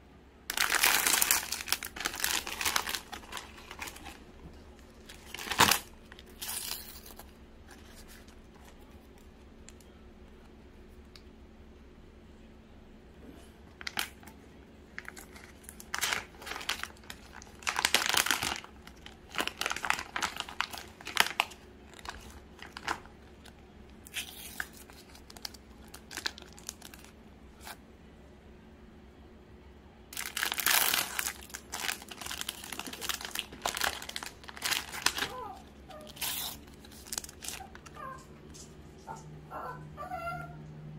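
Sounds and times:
plastic wrappers crinkling and tearing: 0:00.5 - 0:08.8, 0:13.7 - 0:27.8, 0:30.2 - 0:39.1.

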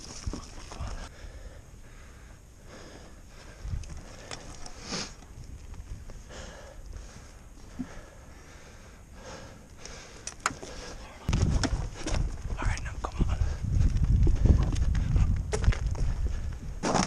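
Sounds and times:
breathing and sniffing: 0:00.7 - 0:05.3, 0:06.2 - 0:12.2
low rumble on microphone: 0:11.2 - 0:16.8.

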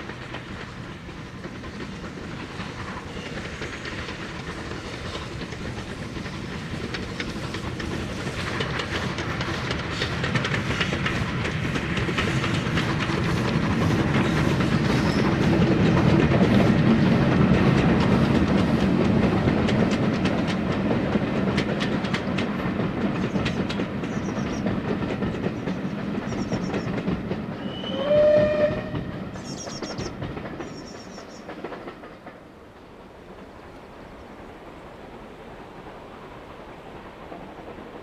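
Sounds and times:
wheels clicking over rail joints: 0:00.0 - 0:34.3
steam train passing: 0:00.0 - 0:38.0
train whistle: 0:27.6 - 0:29.6
birds chirping: 0:29.4 - 0:31.6.

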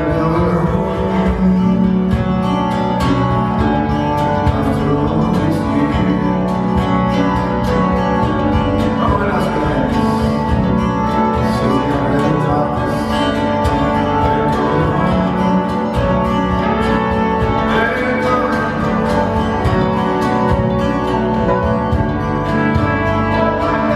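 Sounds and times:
acoustic folk band playing: 0:00.0 - 0:23.9.

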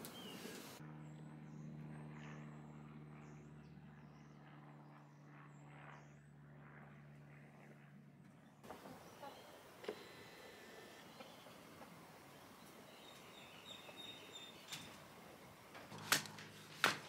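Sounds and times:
faint steady low hum: 0:08.6 - 0:17.0.

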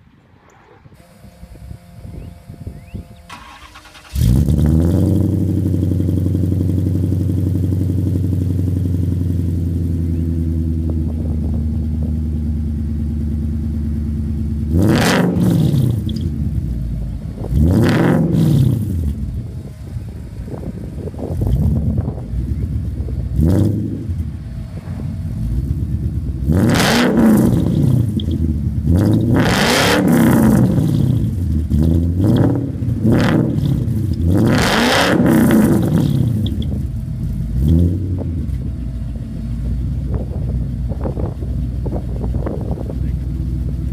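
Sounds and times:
car engine revving: 0:00.0 - 0:43.9.

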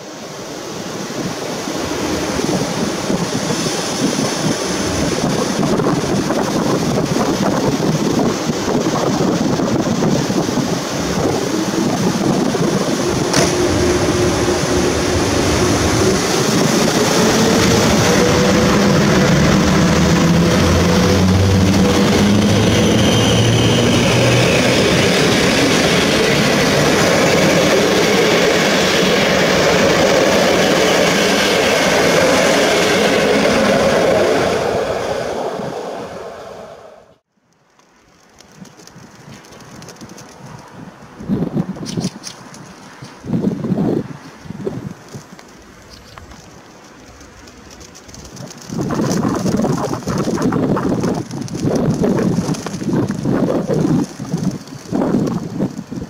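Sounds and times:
train coaches rumbling over rails: 0:00.0 - 0:37.2, 0:38.2 - 0:56.0
electric locomotive motor whine: 0:01.7 - 0:37.2.

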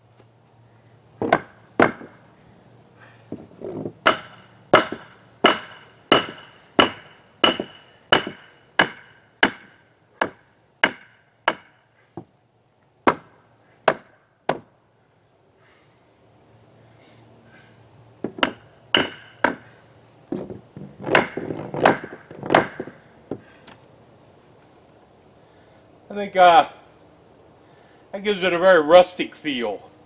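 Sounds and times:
hammer nailing wood: 0:01.2 - 0:02.2, 0:04.0 - 0:11.8, 0:13.1 - 0:14.7, 0:18.2 - 0:19.6, 0:20.4 - 0:23.4.

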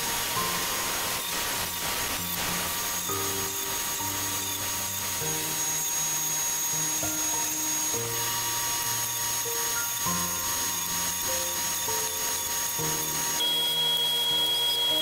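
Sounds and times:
background music with held notes: 0:00.0 - 0:15.0
table saw whining: 0:00.0 - 0:15.0.

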